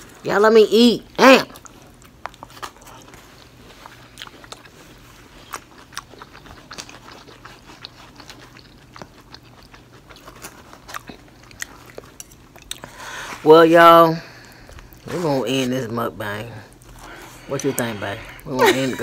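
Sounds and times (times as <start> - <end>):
chewing and eating: 1.3 - 13.4, 14.2 - 15.7.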